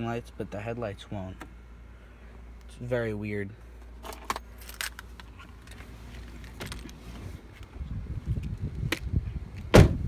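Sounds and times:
low rumbling microphone noise: 0:05.9 - 0:10.0
car door clicks and knocks: 0:09.7 - 0:10.0.

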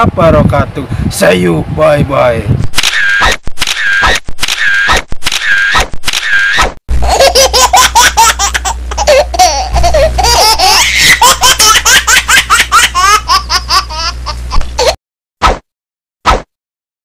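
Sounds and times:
high-pitched laughter: 0:05.5 - 0:15.0.

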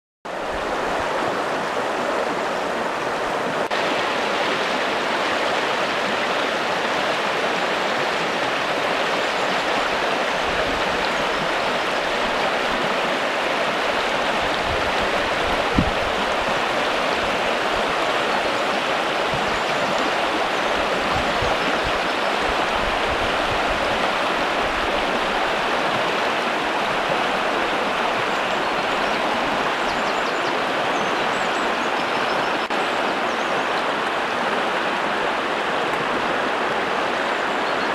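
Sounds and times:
river rushing over rocks: 0:00.3 - 0:37.9.

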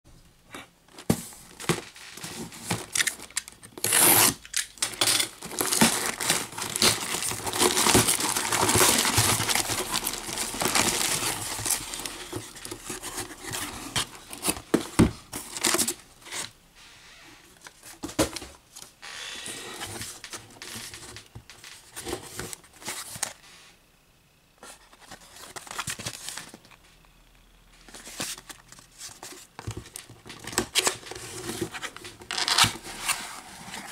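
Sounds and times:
paper rustling: 0:00.9 - 0:16.5.

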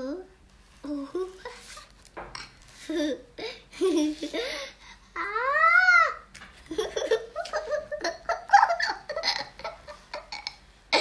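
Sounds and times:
young child giggling and babbling: 0:00.0 - 0:01.9, 0:05.2 - 0:06.3.

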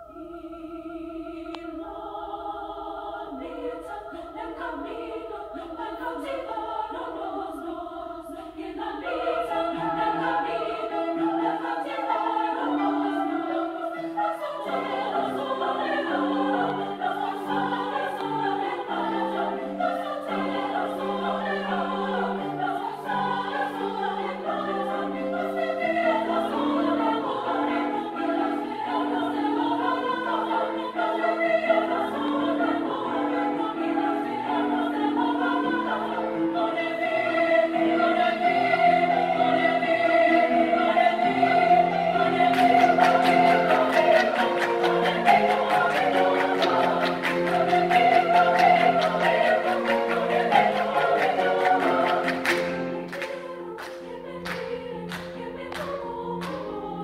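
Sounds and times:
women's choir singing: 0:00.0 - 0:57.0
piano accompaniment: 0:09.1 - 0:57.0
rhythmic hand clapping: 0:42.4 - 0:56.9.

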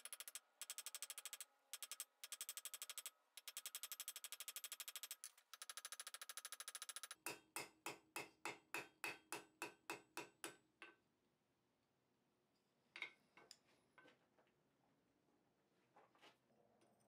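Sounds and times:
hammer striking steel on anvil: 0:07.2 - 0:11.0.

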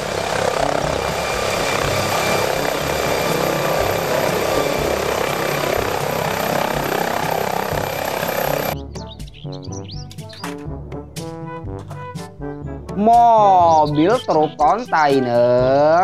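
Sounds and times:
helicopter hovering: 0:00.0 - 0:09.2
low rotor throb: 0:00.0 - 0:09.3.

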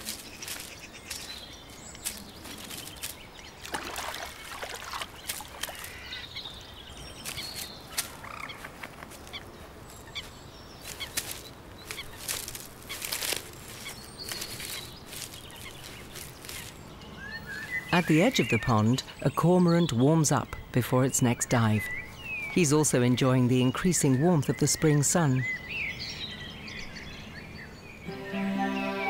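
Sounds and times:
animal calls and clicks: 0:00.0 - 0:06.6.

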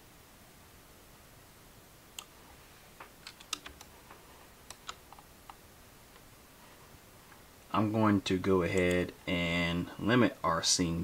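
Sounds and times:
keyboard and mouse clicks: 0:03.0 - 0:05.6, 0:08.7 - 0:09.1.

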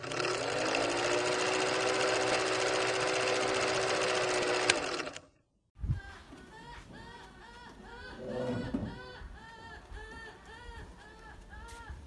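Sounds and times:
film projector clatter: 0:00.0 - 0:05.2.

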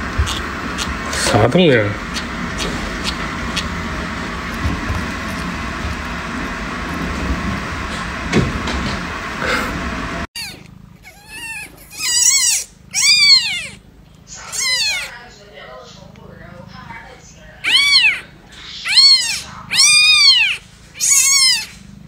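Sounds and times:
kitten mewing: 0:10.4 - 0:15.2, 0:17.6 - 0:21.8.

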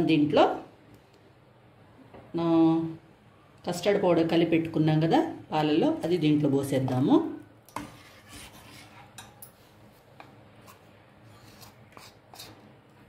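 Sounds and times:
spoon scraping bowl: 0:07.7 - 0:09.7, 0:10.6 - 0:12.6.

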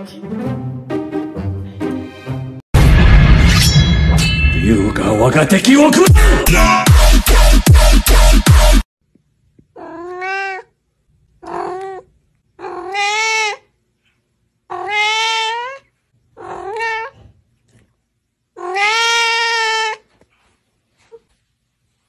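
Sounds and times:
electronic music with heavy beat: 0:05.9 - 0:08.9
cat meowing: 0:09.8 - 0:10.8, 0:11.4 - 0:13.7, 0:14.7 - 0:17.3, 0:18.6 - 0:20.1.

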